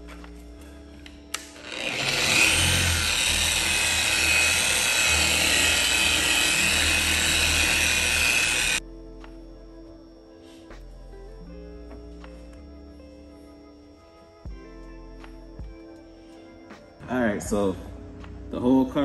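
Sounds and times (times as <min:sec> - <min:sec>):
electric polisher running: 0:01.3 - 0:08.8.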